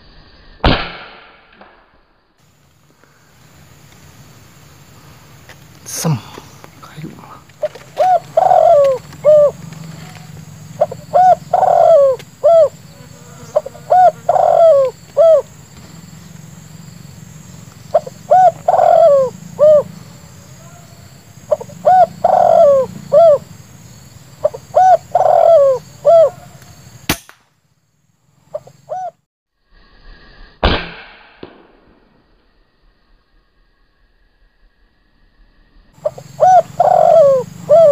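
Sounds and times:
sharp crack: 0.6 - 2.2, 26.6 - 27.6, 30.6 - 32.6
dove cooing: 7.2 - 16.4, 17.8 - 23.6, 24.4 - 26.7, 28.5 - 29.2, 36.0 - 37.9.

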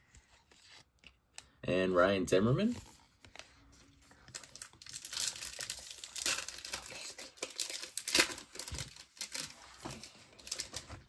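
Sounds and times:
wrapper crinkling and tearing: 4.3 - 11.0.

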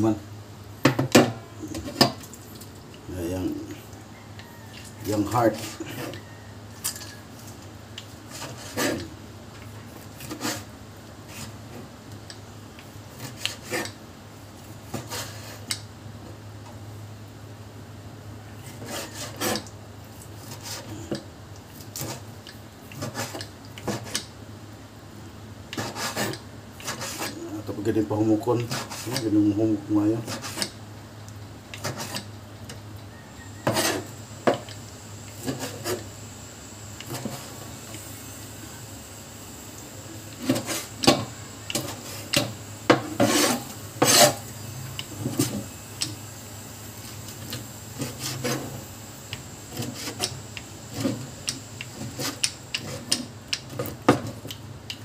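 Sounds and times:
steady low hum: 0.0 - 55.0
knife scraping cutting board: 4.8 - 7.0, 8.3 - 9.1, 10.0 - 10.7, 11.3 - 11.6, 13.1 - 14.0, 14.9 - 15.7, 18.7 - 19.7, 20.4 - 21.1, 21.8 - 22.3, 22.9 - 24.3, 25.7 - 27.6, 28.6 - 29.3, 30.2 - 30.8, 31.8 - 32.3, 33.6 - 34.7, 35.4 - 36.1, 37.0 - 37.6, 40.4 - 45.7, 47.5 - 48.8, 49.7 - 54.3.

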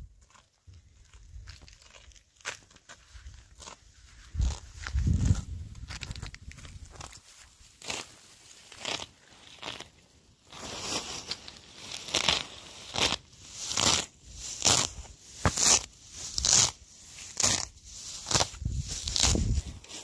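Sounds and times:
grass blades being torn: 4.4 - 20.0.

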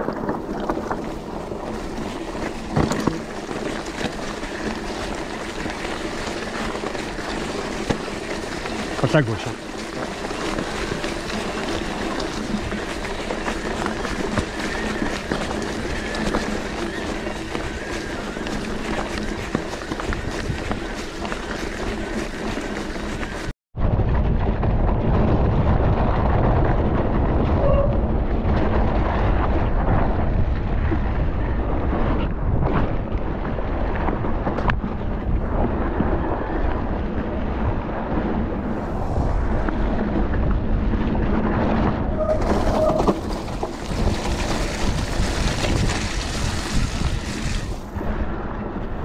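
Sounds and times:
bike knocks and rattles: 0.0 - 23.5, 39.9 - 48.0
wind buffeting microphone: 0.0 - 49.0.

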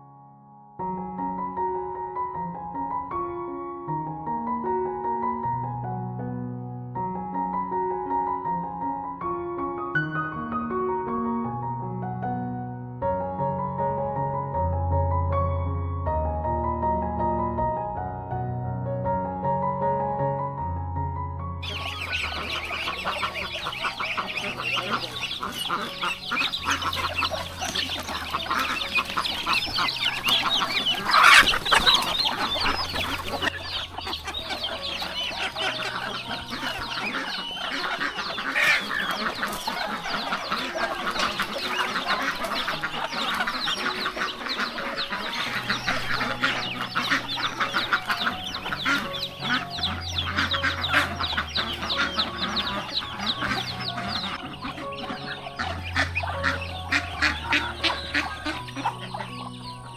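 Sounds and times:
chicken squawk: 21.6 - 59.9
chickens clucking: 21.6 - 59.9.

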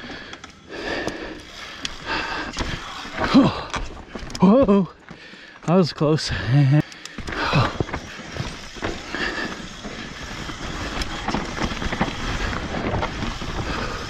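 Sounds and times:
bike tyres crunching over rock: 0.0 - 14.0
bike knocks and rattles: 7.2 - 14.0.

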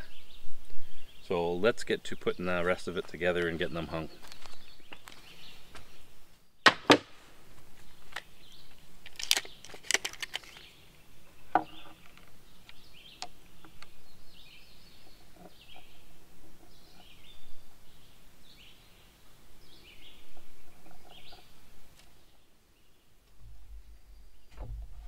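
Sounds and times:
tape measure handled: 9.0 - 10.7.

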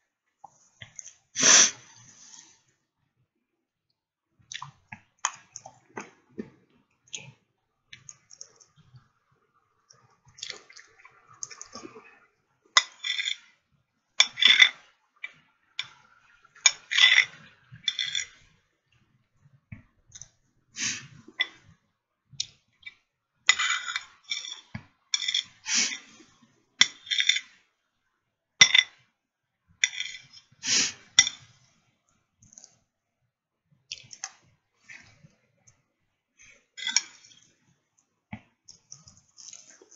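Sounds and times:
wet chewing and lip-smacking: 4.5 - 6.1.

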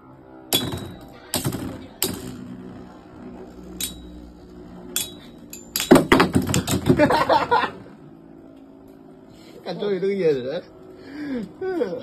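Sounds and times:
low steady hum: 0.0 - 12.0
spinning tops clacking together: 0.5 - 2.7, 5.0 - 7.0.

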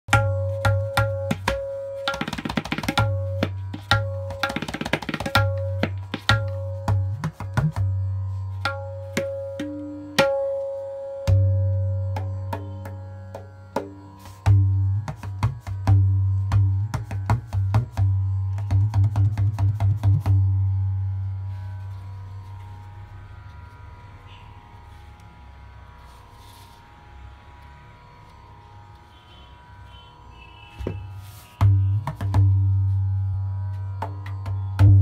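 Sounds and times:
tabla treble drum strokes: 0.1 - 22.8, 30.5 - 35.0.

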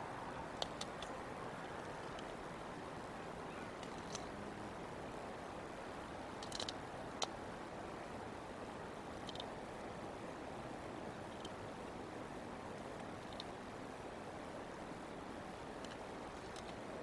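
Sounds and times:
steady outdoor hiss: 0.0 - 17.0
faint clicks and rustles: 0.4 - 4.9, 12.7 - 13.8, 14.8 - 17.0.

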